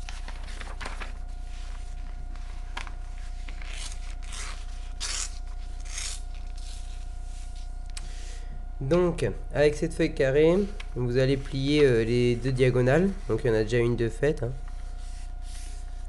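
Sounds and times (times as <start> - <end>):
paper being folded and creased: 0.0 - 7.0
low electrical hum: 0.0 - 16.0.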